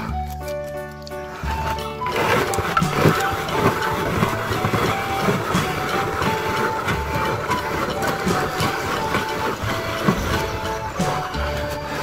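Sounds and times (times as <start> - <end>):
meat grinder crunching chocolate: 0.0 - 12.0.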